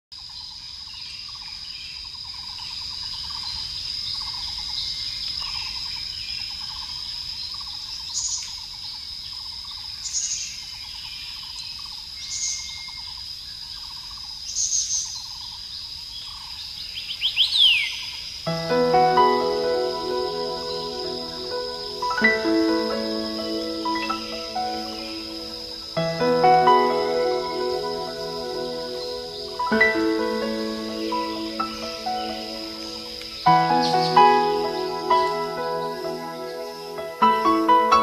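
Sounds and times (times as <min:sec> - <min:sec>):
bird chirps: 0:17.0 - 0:38.0
high insect trill: 0:18.1 - 0:38.0.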